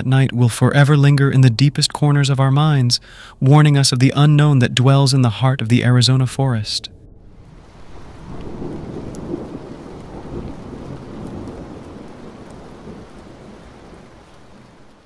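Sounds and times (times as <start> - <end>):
rolling thunder rumble: 6.7 - 15.0
rain: 7.2 - 15.0.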